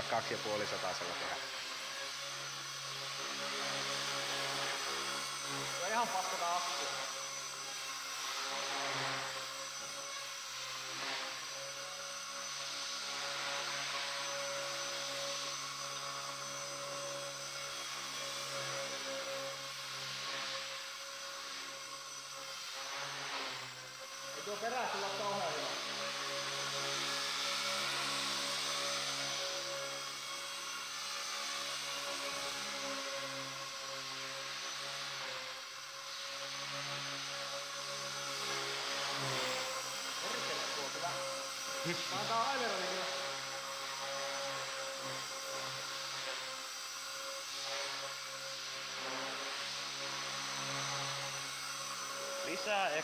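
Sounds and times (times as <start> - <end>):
rc helicopter motor and rotor whine: 0.0 - 53.0.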